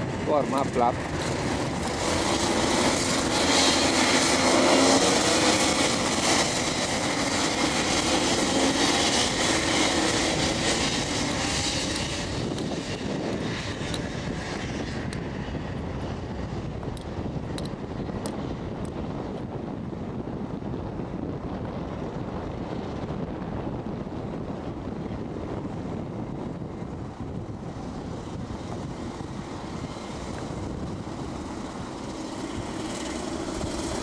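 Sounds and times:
racing kart engines buzzing: 0:00.1 - 0:18.4, 0:25.6 - 0:34.0.

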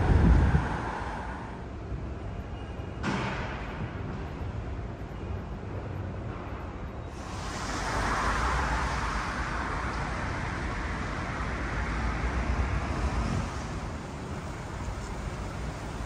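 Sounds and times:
road traffic: 0:00.0 - 0:16.0
vehicle passing by: 0:07.2 - 0:16.0.

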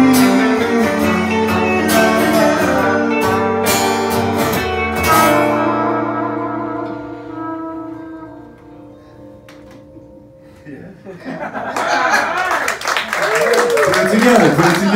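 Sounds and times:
live band with guitars and trumpet: 0:00.0 - 0:10.6.

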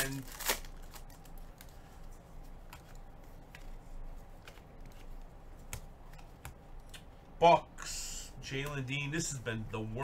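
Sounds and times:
trading cards being flipped: 0:00.0 - 0:07.1.

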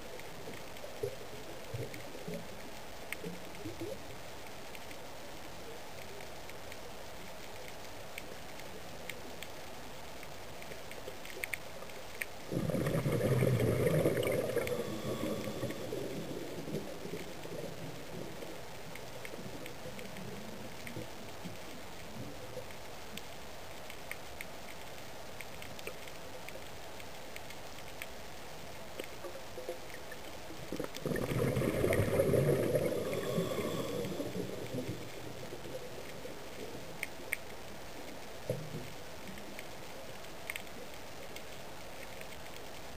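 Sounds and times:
faint clicks: 0:00.0 - 0:42.9
underwater bubbling water: 0:10.8 - 0:23.3, 0:28.8 - 0:41.4
diver's exhaled bubbles: 0:12.5 - 0:17.2, 0:30.7 - 0:35.4
underwater hiss: 0:12.5 - 0:18.5, 0:30.8 - 0:36.9.

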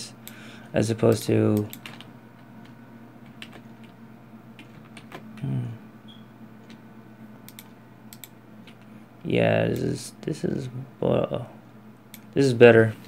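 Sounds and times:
steady low hum: 0:00.0 - 0:13.0
computer mouse and keyboard clicks: 0:01.1 - 0:04.0, 0:07.5 - 0:08.9
low voice murmuring: 0:05.4 - 0:05.8.

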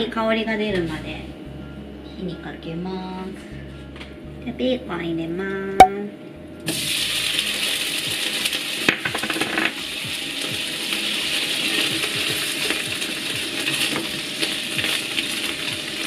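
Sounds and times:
bacon sizzling in a frying pan: 0:06.7 - 0:16.0.

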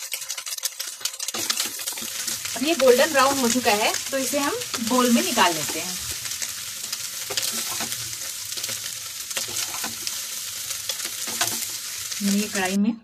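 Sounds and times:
spoon scraping pan: 0:00.0 - 0:12.5
food sizzling in oil: 0:00.0 - 0:12.9.

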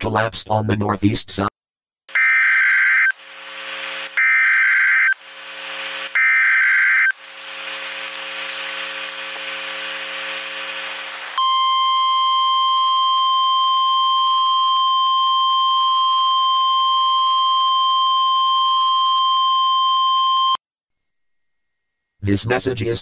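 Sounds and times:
harsh buzzing noise: 0:02.1 - 0:13.0.

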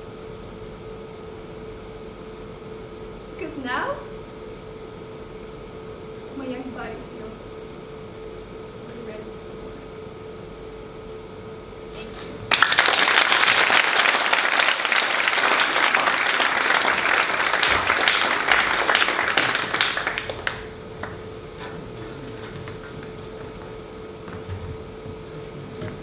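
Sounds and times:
audience applauding: 0:12.0 - 0:23.7.

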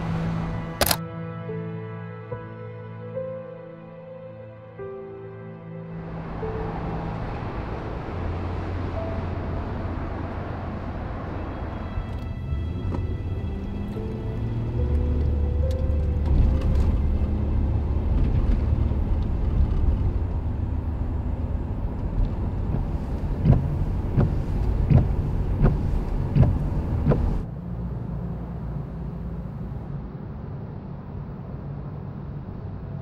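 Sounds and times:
car road and engine rumble: 0:00.0 - 0:01.1, 0:03.8 - 0:33.0
street background: 0:00.0 - 0:33.0
sharp clicks: 0:00.8 - 0:01.0.

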